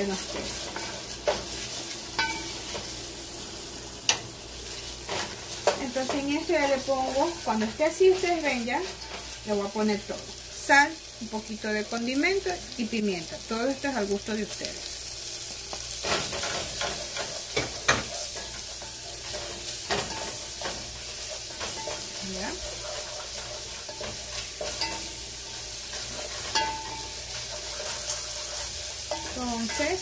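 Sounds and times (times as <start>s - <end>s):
onions sizzling in a pot: 0.0s - 30.0s
wooden spoon scraping a pot: 20.6s - 24.9s.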